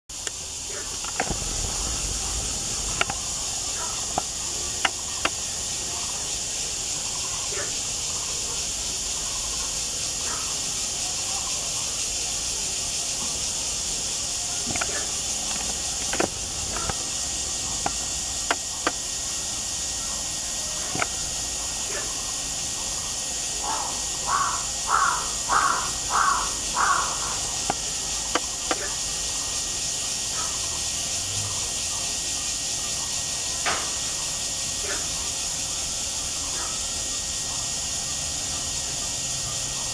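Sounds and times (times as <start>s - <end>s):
steady high hiss: 0.1s - 39.9s
toucan croaking calls: 0.2s - 29.6s.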